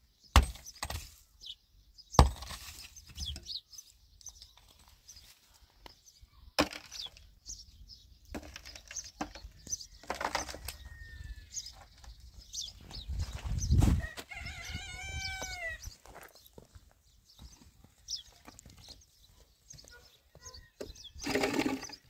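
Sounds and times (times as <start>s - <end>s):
small birds chirping: 0.0s - 22.0s
chicken calling: 13.9s - 16.1s.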